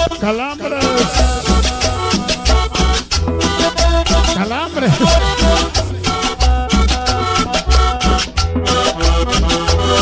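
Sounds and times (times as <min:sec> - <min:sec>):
accordion notes: 0:00.0 - 0:10.0
shaking scraping percussion: 0:00.8 - 0:04.4
heavy bass beat: 0:00.8 - 0:07.4.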